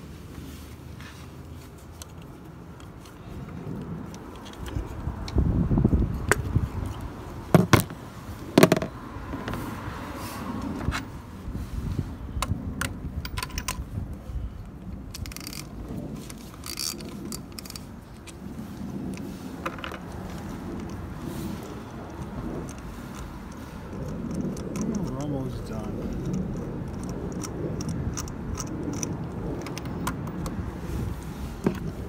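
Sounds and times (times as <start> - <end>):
wind rumble on microphone: 0.0 - 32.0
sharp metallic clicks: 22.0 - 30.6.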